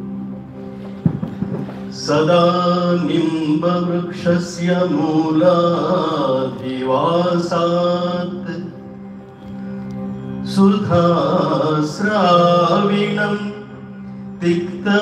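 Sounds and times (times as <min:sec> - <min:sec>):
steady drone: 0:00.0 - 0:15.0
man chanting into a microphone: 0:02.0 - 0:08.8, 0:10.5 - 0:13.7, 0:14.4 - 0:15.0.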